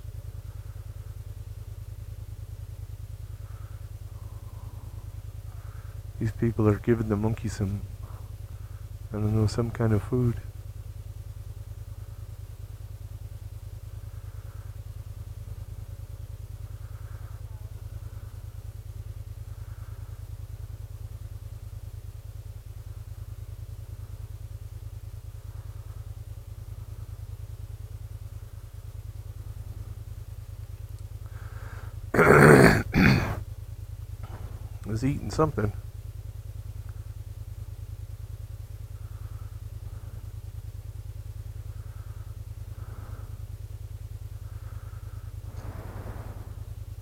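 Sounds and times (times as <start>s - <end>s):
scooter engine idling: 0.0s - 47.0s.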